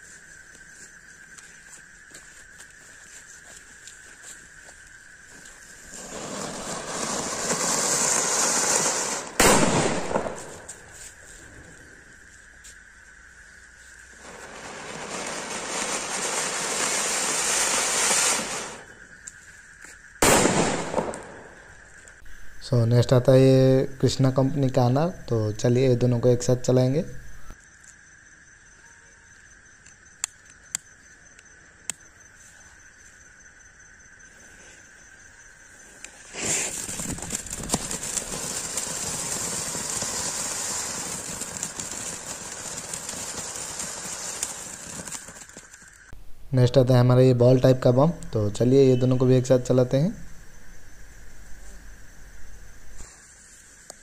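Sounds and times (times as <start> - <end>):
fireworks hissing: 5.3 - 12.1, 14.0 - 19.2, 20.2 - 21.9, 36.0 - 46.2, 52.7 - 54.0
loud firework burst: 5.8 - 10.9, 14.2 - 19.0, 20.2 - 21.6, 36.3 - 45.7.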